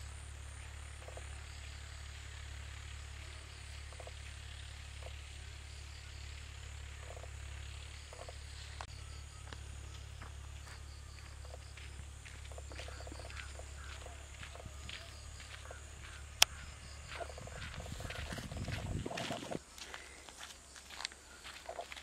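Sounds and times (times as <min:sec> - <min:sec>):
faint insect buzz: 0:00.0 - 0:22.0
steady low drone: 0:00.0 - 0:22.0
small animal calls: 0:12.4 - 0:19.6.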